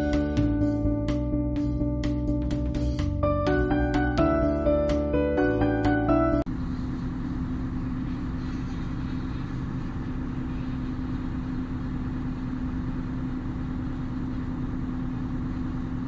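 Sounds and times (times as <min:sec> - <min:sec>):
engine running steadily: 0:00.0 - 0:16.0.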